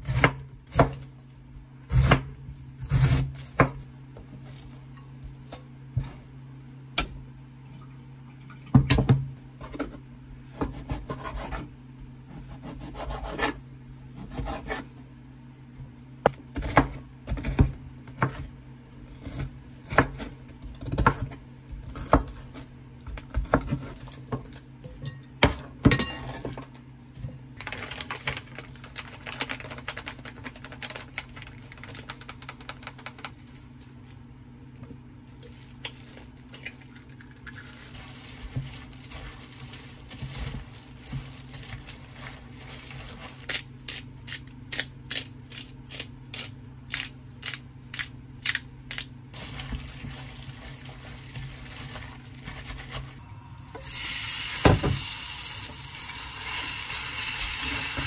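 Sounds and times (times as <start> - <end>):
hands handling cabbage in glass bowl: 49.3 - 53.2.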